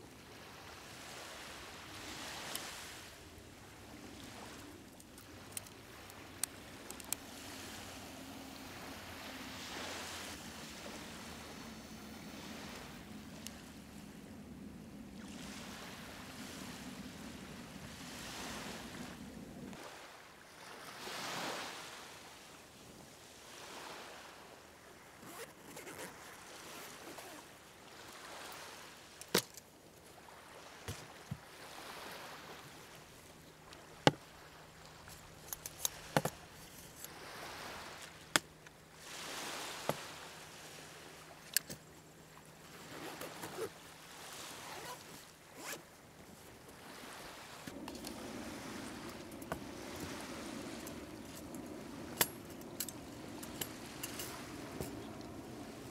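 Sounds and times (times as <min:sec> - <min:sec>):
surf washing on beach: 0:00.0 - 0:25.1, 0:37.1 - 0:41.4, 0:42.4 - 0:55.9.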